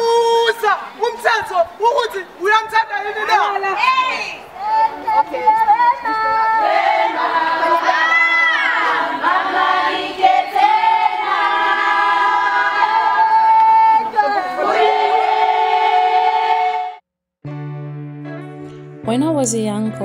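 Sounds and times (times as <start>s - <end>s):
women singing together: 4.6s - 17.0s.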